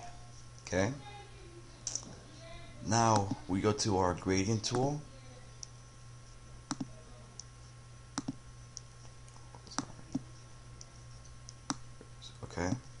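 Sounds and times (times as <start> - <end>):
faint low steady hum: 0.0 - 13.0
computer mouse clicking: 3.1 - 3.4, 6.7 - 7.5, 8.2 - 8.9.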